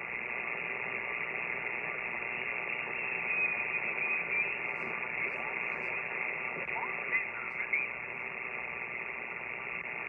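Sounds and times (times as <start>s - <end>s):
radio band hiss: 0.0s - 10.0s
faint high radio whistle: 1.8s - 6.1s.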